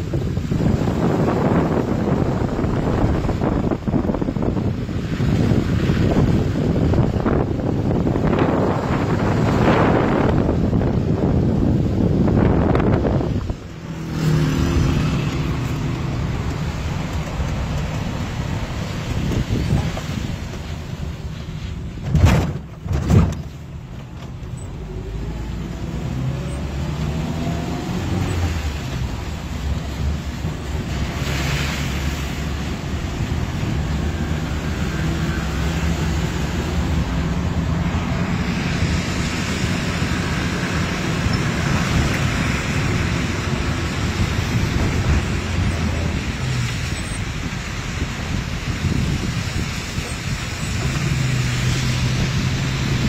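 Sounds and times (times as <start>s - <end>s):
tyres hissing on wet road: 0.0s - 22.0s, 23.6s - 53.0s
car road and engine noise: 0.0s - 53.0s
wind at open window: 0.0s - 53.0s
loud thumps: 22.0s - 23.6s.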